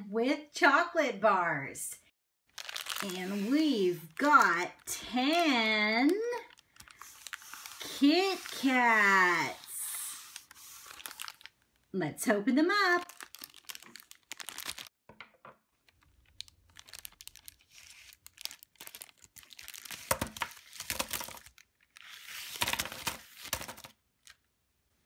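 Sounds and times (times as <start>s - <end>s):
plastic wrapper crinkling: 2.5s - 11.6s, 12.9s - 15.0s, 15.8s - 24.5s
wrapped bars spilling out: 2.6s - 3.1s.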